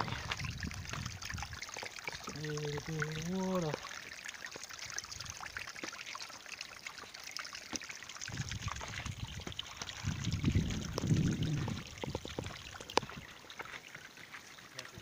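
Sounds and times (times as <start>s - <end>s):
low rumbling on microphone: 0.0s - 1.6s, 8.3s - 13.3s
water trickling over rocks: 0.0s - 15.0s.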